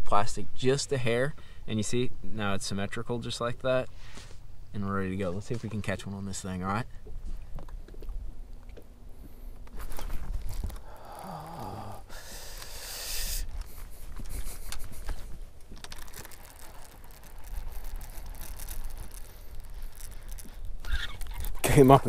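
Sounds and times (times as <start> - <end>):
fishing line paying out: 9.6 - 22.0
fishing reel clicking: 12.2 - 13.7, 15.8 - 21.7.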